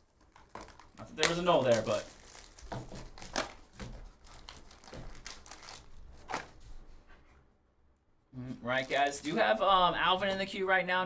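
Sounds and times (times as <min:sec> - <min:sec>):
plastic shrink wrap crinkling: 0:00.0 - 0:06.9, 0:08.6 - 0:10.3.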